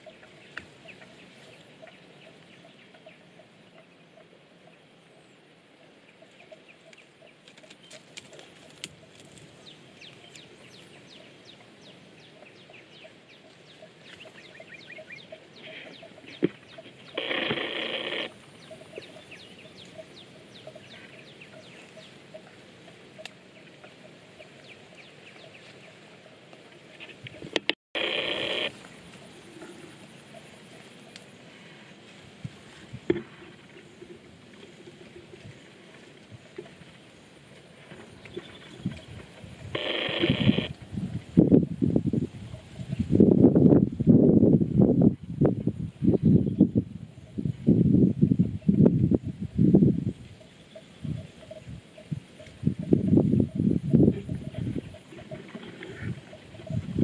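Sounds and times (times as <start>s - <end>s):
low steady hiss: 0.0s - 57.0s
loud animal call: 17.1s - 18.4s, 28.0s - 28.7s, 39.8s - 40.7s.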